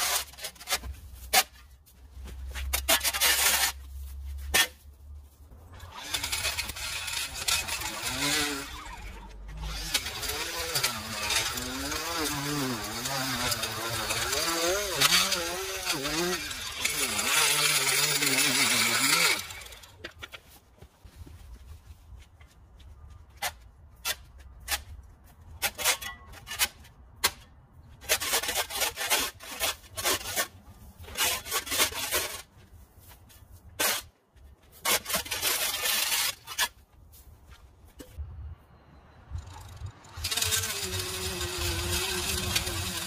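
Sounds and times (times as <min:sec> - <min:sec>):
shovel scraping on concrete: 0:00.0 - 0:20.6, 0:23.3 - 0:37.3, 0:40.2 - 0:43.0
power edger running: 0:05.8 - 0:20.0, 0:40.1 - 0:43.0.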